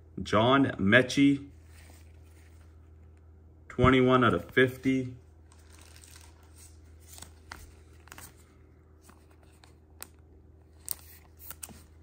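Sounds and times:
low steady hum: 0:00.0 - 0:12.0
plastic card sleeve crinkling: 0:04.3 - 0:12.0.

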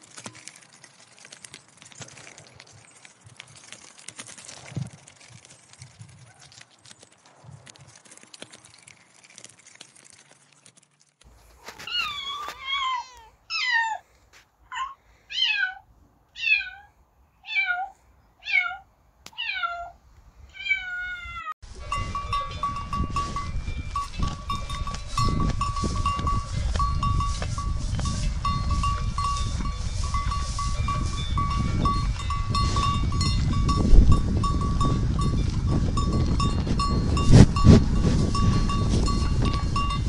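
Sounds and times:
cats meowing: 0:11.7 - 0:14.1, 0:14.7 - 0:18.8, 0:19.4 - 0:21.5
steady rushing noise: 0:21.7 - 0:40.0
thin high ringing tone: 0:21.7 - 0:40.0.

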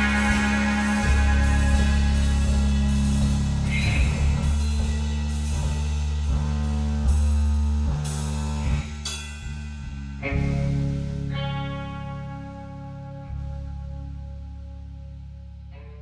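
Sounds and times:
cymbal crashes: 0:00.0 - 0:06.4
rock guitar: 0:00.0 - 0:08.0, 0:09.8 - 0:16.0
drum kit: 0:00.0 - 0:11.3
low bass notes: 0:00.0 - 0:16.0.

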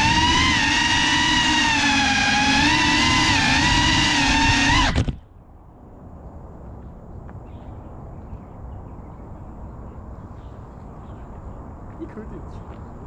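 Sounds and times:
loud steady hum: 0:00.0 - 0:05.3.

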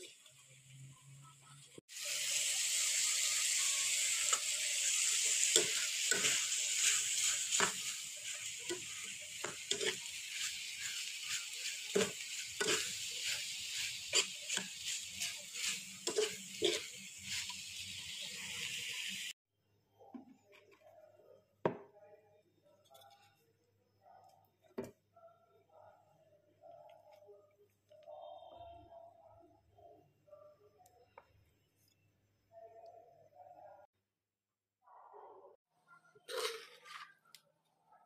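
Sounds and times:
food sizzling in a pan: 0:00.0 - 0:19.4
spatula scraping a pan: 0:03.3 - 0:18.8.

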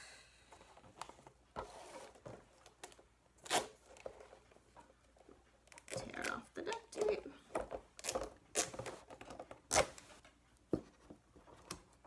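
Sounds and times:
duct tape rasping and crinkling: 0:05.6 - 0:10.1.

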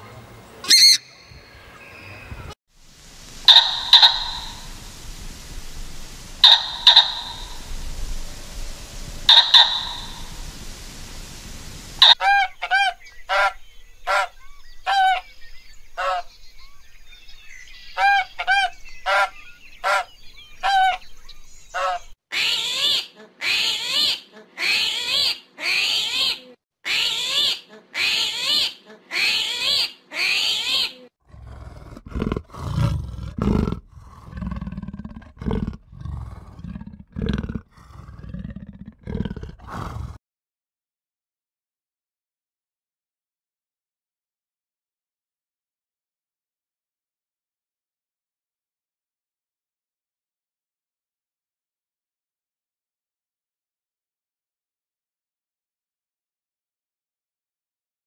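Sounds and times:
loud harsh animal calls: 0:03.3 - 0:05.2, 0:06.1 - 0:08.2, 0:08.9 - 0:10.6, 0:11.9 - 0:13.5, 0:21.8 - 0:40.2
short ringing animal calls: 0:03.4 - 0:04.8, 0:06.4 - 0:07.8, 0:09.3 - 0:10.4
deep low grunting calls: 0:31.3 - 0:40.2.

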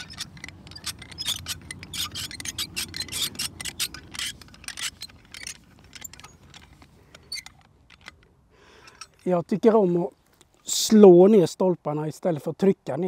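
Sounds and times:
screw rasping into wood: 0:00.0 - 0:06.6.

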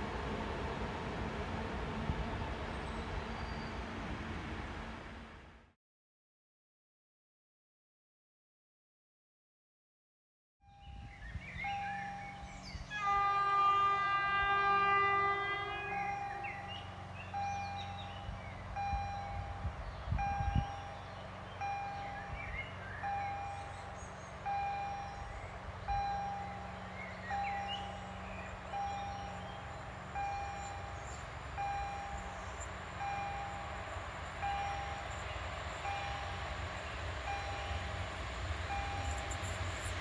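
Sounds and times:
train rumbling: 0:00.0 - 0:05.7, 0:10.8 - 0:40.0
train horn: 0:12.9 - 0:16.9
level crossing signal beeping: 0:15.7 - 0:21.0, 0:21.6 - 0:23.8, 0:24.4 - 0:35.2, 0:35.8 - 0:36.4, 0:37.2 - 0:37.9, 0:38.7 - 0:39.4.

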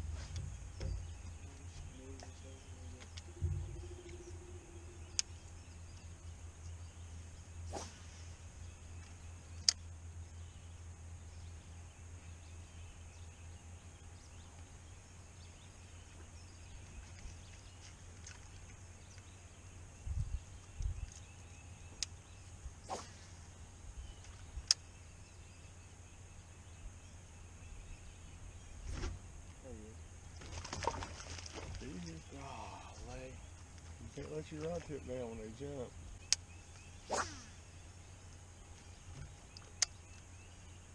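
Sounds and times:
low steady hum: 0:00.0 - 0:40.9
faint high-pitched drone: 0:02.0 - 0:06.0.

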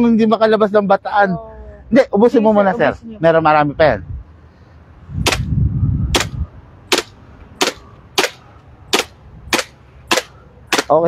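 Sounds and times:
airsoft pistol shots: 0:05.2 - 0:05.5, 0:06.1 - 0:11.0.

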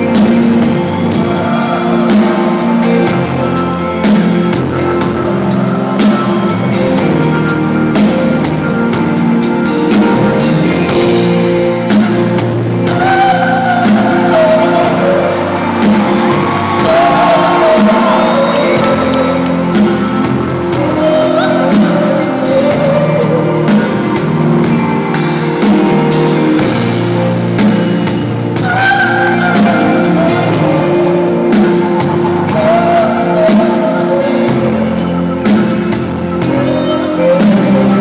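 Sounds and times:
live band playing in arena: 0:00.0 - 0:38.0
person singing melody: 0:00.0 - 0:38.0
crowd shouting and whooping: 0:13.3 - 0:34.4.

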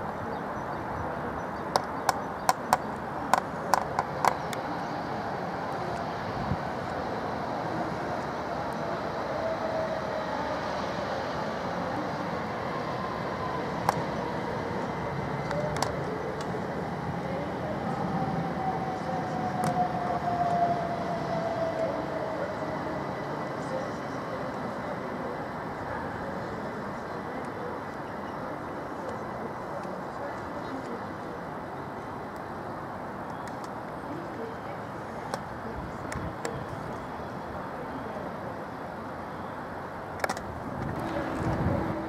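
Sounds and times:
train rumble: 0:00.0 - 0:42.0.

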